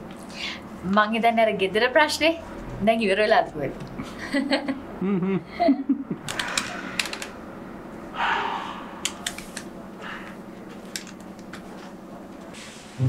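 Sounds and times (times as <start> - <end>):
steady low hum: 0.0 - 13.0
soft rush: 8.1 - 9.6.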